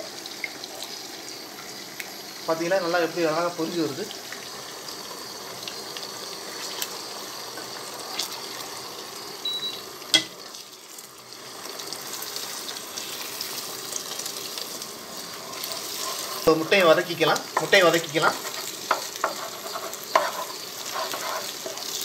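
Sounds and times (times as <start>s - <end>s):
eggs sizzling in hot oil: 0.0s - 22.0s
spatula tapping a pot: 18.4s - 21.9s.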